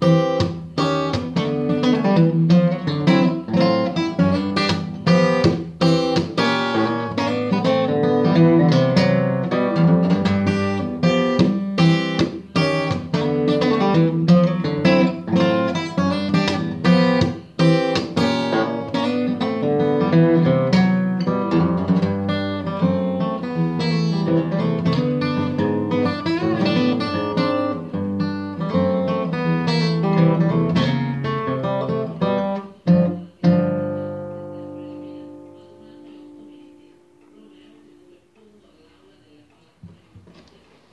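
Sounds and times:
fingerstyle acoustic guitar blues: 0.0s - 38.5s.

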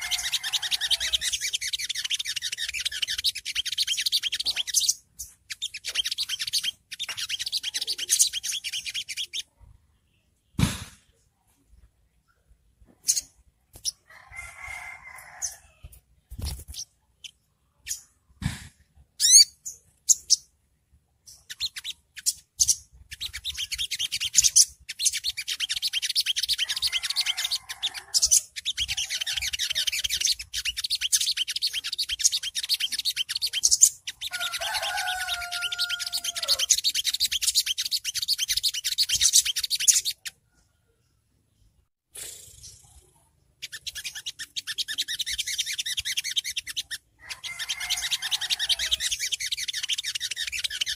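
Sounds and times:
sunbird high chirps: 0.0s - 9.5s, 19.2s - 20.5s, 21.2s - 40.4s, 42.4s - 50.9s.

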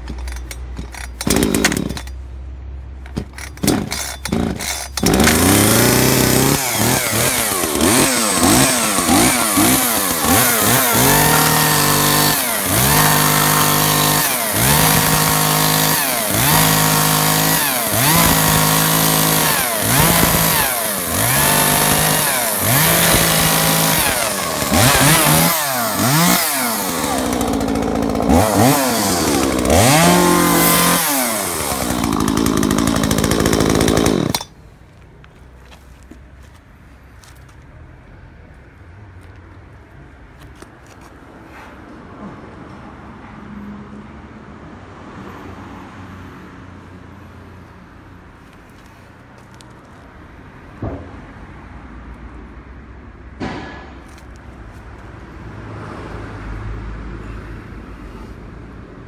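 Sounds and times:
chainsaw cutting wood: 0.0s - 2.2s, 3.2s - 34.6s
starter cord pulls: 0.0s - 2.2s, 3.0s - 16.7s
chainsaw revving: 0.9s - 2.1s, 3.4s - 34.5s.

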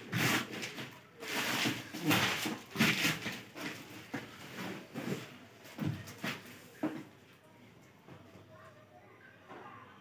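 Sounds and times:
plastic and bubble wrap crinkling: 0.0s - 7.1s.

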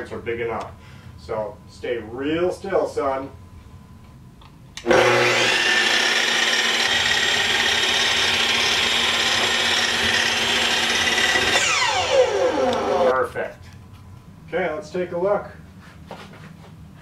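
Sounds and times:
miter saw whining: 4.8s - 13.2s.

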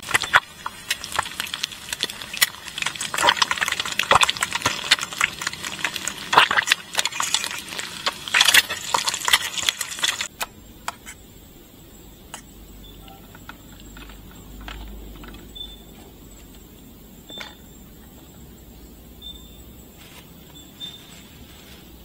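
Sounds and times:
rapid irregular clicks and scrapes: 0.0s - 11.2s.

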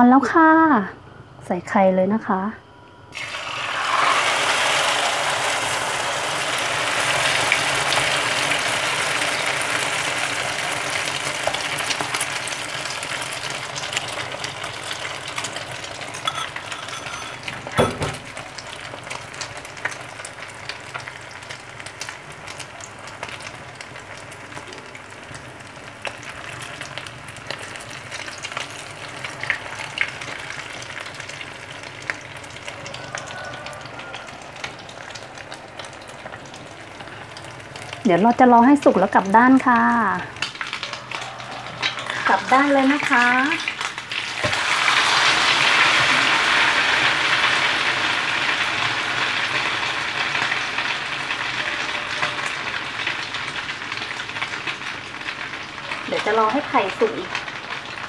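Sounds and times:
egg sizzling in frying pan: 3.1s - 58.0s
knock: 17.8s - 18.2s.

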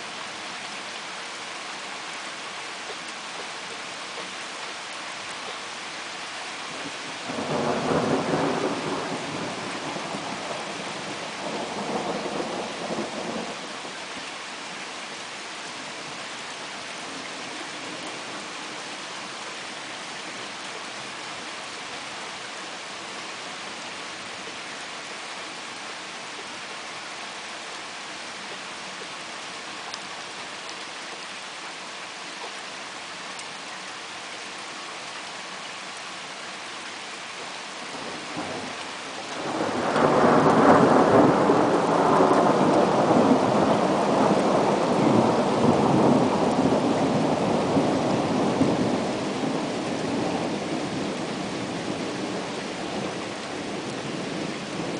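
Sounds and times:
rain falling: 0.0s - 54.9s
thunder rumbling: 7.3s - 13.6s, 39.4s - 54.9s.

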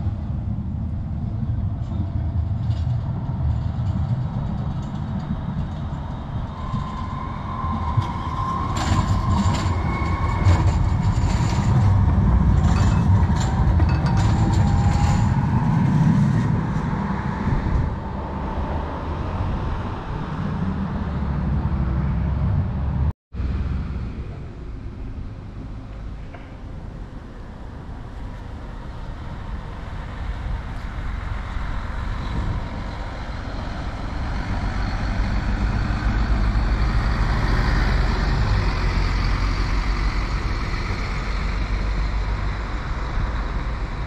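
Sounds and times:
tram rumbling: 0.0s - 44.0s
wheels clicking over rail joints: 1.7s - 16.6s
wheel squeal: 5.8s - 16.5s.

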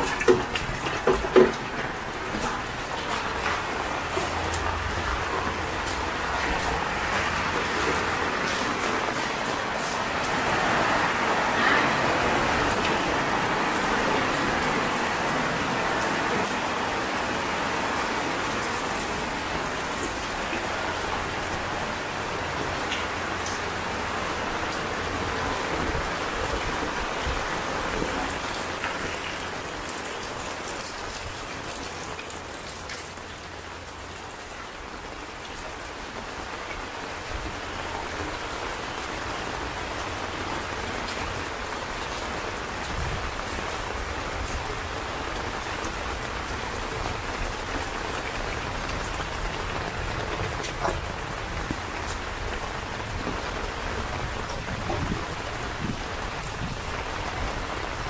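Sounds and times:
sharp water drips: 0.0s - 10.4s, 27.4s - 34.4s
rain falling on concrete: 0.0s - 58.0s.

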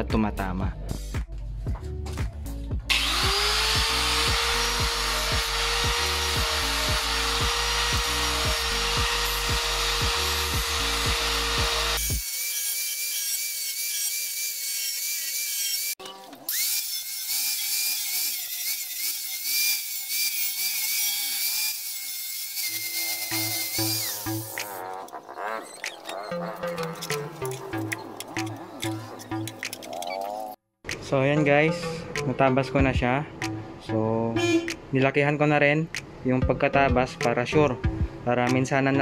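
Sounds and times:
background music with beat: 0.0s - 11.8s, 26.6s - 29.9s, 30.9s - 35.0s, 35.9s - 39.0s
angle grinder cutting plastic: 2.9s - 30.3s.

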